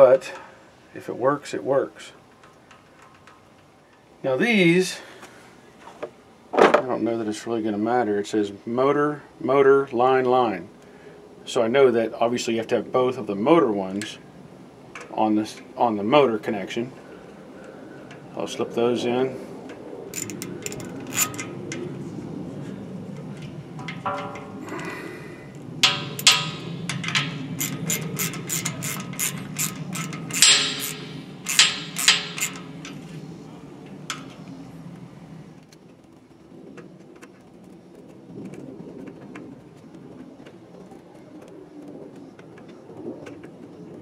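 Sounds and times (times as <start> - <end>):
screwdriver clicking on metal screws: 20.1 - 21.8, 25.8 - 33.1.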